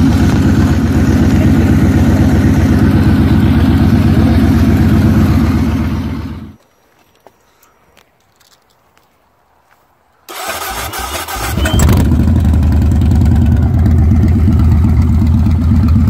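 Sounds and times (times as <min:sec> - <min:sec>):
motorcycle engine idling: 0:00.0 - 0:06.6, 0:11.7 - 0:16.0.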